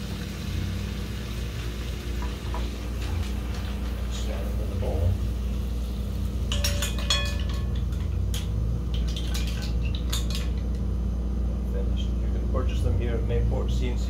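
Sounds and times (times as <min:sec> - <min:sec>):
steady low hum: 0:00.0 - 0:14.0
mussel shells clinking: 0:06.5 - 0:10.8.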